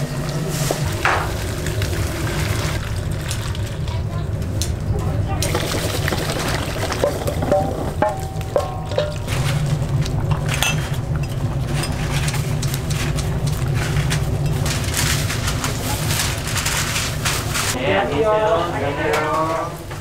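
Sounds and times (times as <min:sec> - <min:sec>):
steady low hum: 0:00.0 - 0:20.0
utensils and dishes clinking: 0:05.4 - 0:17.8.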